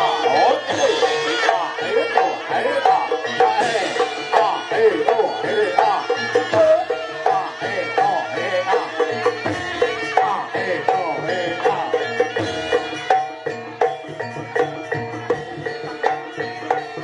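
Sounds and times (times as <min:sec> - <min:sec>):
drum strokes: 0:03.0 - 0:08.2.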